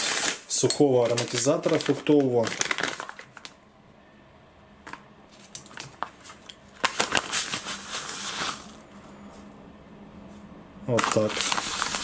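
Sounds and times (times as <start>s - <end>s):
packet crinkling: 0.0s - 3.6s, 4.9s - 8.8s, 10.9s - 12.0s.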